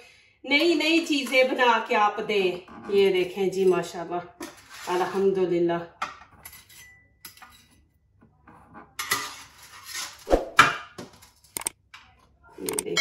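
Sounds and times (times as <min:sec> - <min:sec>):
metal spatula scraping baking tray: 0:02.8 - 0:05.5, 0:08.6 - 0:11.4.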